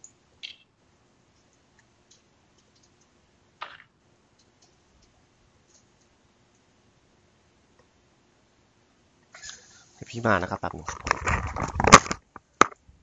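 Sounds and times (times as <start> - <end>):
computer keyboard clicking: 1.4 - 3.8.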